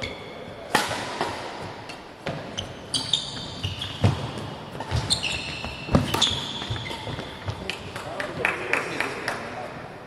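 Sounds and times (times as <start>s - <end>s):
shoes squeaking on court: 0.0s - 0.8s, 1.4s - 8.0s
racket hitting shuttlecock: 0.6s - 8.2s.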